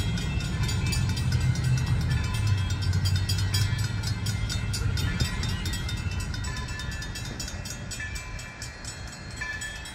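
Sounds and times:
steam locomotive rumble: 0.0s - 9.9s.

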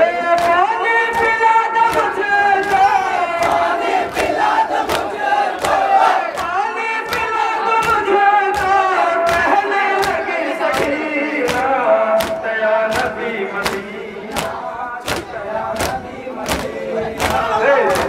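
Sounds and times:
men chanting together: 0.0s - 18.0s
sharp even beats: 1.2s - 18.0s.

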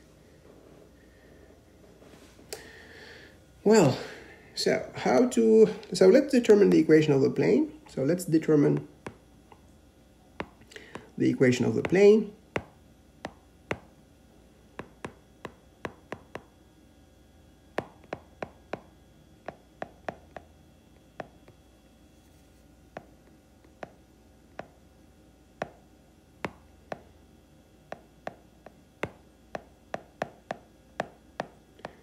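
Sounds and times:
stylus tapping on glass screen: 8.8s - 9.6s, 10.4s - 11.1s, 12.6s - 13.9s, 14.8s - 16.5s, 17.8s - 20.5s, 21.2s - 21.6s, 23.8s - 24.0s, 24.6s - 24.8s, 25.6s - 25.8s, 26.4s - 27.2s, 27.9s - 32.0s.

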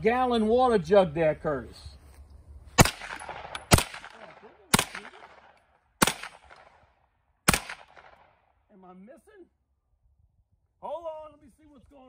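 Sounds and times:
gunshots with echo: 2.8s - 6.8s, 7.5s - 8.3s.

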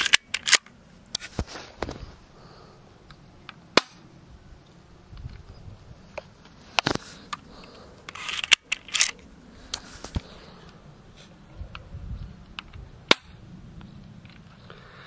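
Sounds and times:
airsoft pistol cocking and firing: 0.0s - 0.7s, 8.1s - 9.2s.

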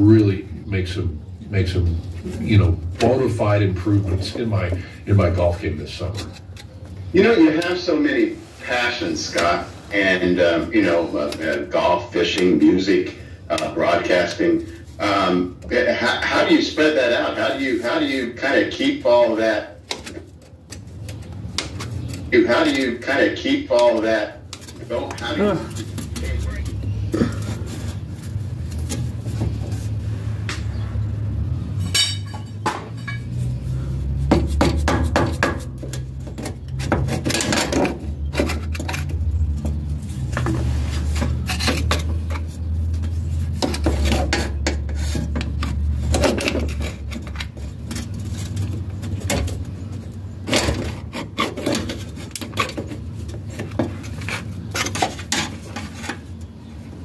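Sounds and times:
metal clinking and clanking: 31.8s - 33.4s.

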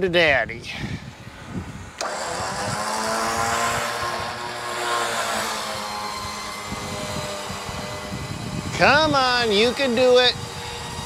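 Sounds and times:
electric winch motor whining: 1.2s - 11.0s.

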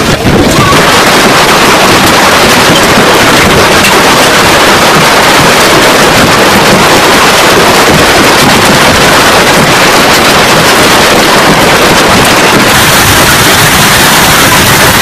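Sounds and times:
hailstones pelting water and pavement: 0.0s - 15.0s.

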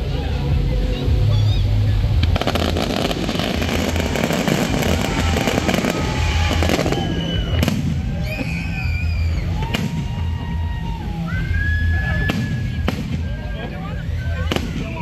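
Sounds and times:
fireworks crackling: 0.1s - 15.0s
sharp firework bangs: 2.2s - 8.6s, 12.2s - 13.4s
whistling fireworks: 2.3s - 15.0s.

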